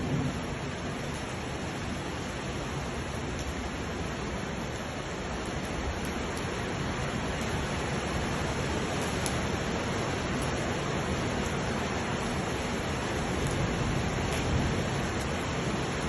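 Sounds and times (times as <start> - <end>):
floodwater rushing down a street: 0.0 - 16.0.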